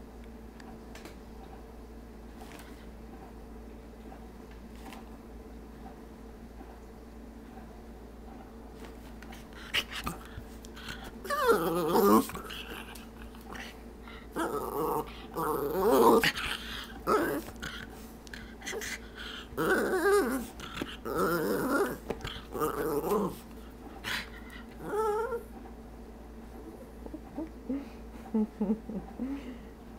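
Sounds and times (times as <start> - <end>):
dog making drawn-out vocal sounds: 9.3 - 25.5.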